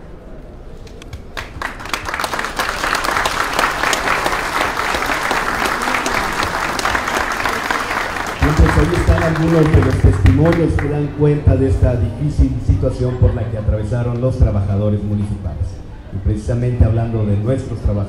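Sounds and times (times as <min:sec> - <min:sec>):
audience applauding: 0:01.1 - 0:11.2.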